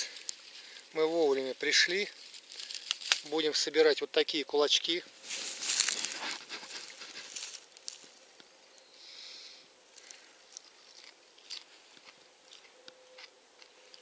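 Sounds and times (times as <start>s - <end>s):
leafy stem rustling: 0.0s - 4.0s, 4.8s - 9.2s, 9.9s - 12.7s
soft hiss: 0.0s - 14.0s
crisp chewing crunches: 2.1s - 3.3s, 5.2s - 8.2s, 9.9s - 14.0s.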